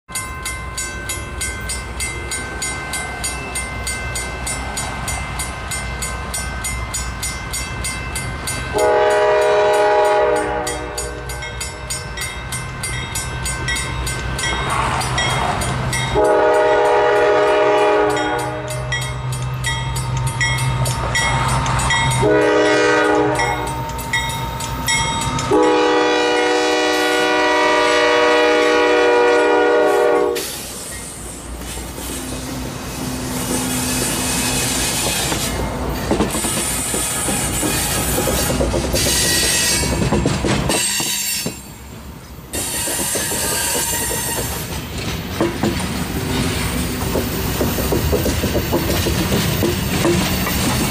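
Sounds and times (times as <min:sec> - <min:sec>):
diesel locomotive engines rumbling: 0:00.1 - 0:50.9
train horn blasts: 0:08.7 - 0:11.5, 0:14.6 - 0:19.2, 0:22.2 - 0:23.8, 0:25.5 - 0:30.6, 0:42.6 - 0:44.7.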